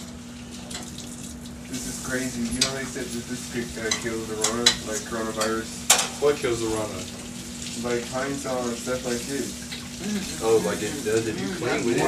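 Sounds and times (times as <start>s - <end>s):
water running at sink: 0.0s - 12.0s
food sizzling in a pan: 0.2s - 12.0s
dishes clinking: 2.4s - 6.2s.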